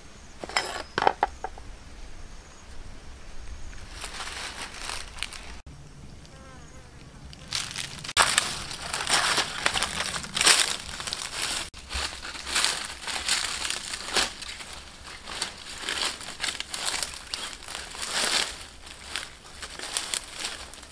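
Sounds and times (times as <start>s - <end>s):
dry leaves crunching underfoot: 3.8s - 5.7s, 7.3s - 20.9s.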